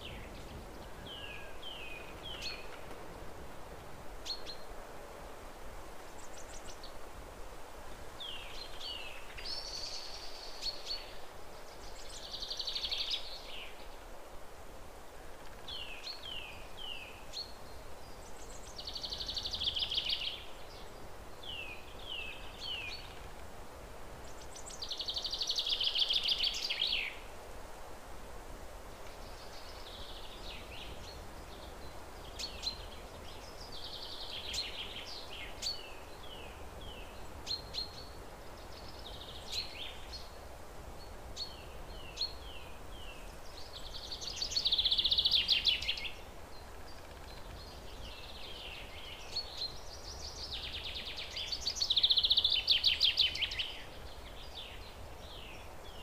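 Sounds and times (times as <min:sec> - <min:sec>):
birds singing: 0:00.0 - 0:03.2, 0:29.1 - 0:40.4, 0:41.0 - 0:56.0
background noise: 0:00.0 - 0:56.0.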